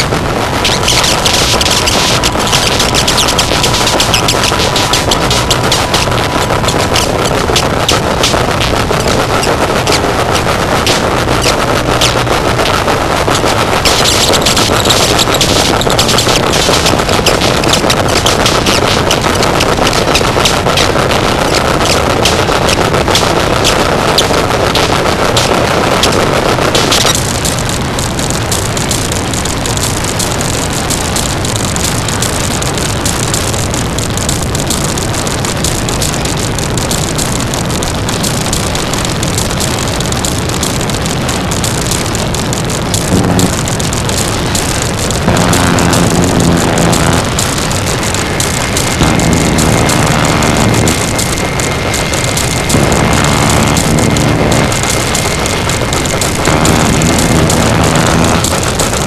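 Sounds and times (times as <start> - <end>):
distorted static noise music: 0.0 - 59.0
rapid crackling snaps: 0.0 - 59.0
low pitched drone: 40.5 - 59.0.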